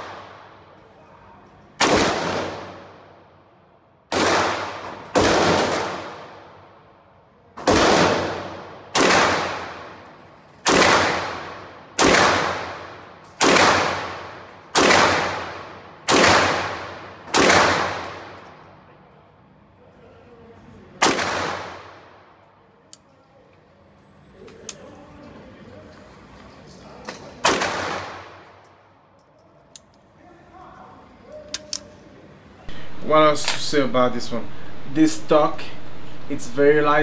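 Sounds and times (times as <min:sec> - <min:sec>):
gunshots echoing indoors: 0:00.0 - 0:18.8, 0:21.0 - 0:22.6, 0:27.4 - 0:29.1.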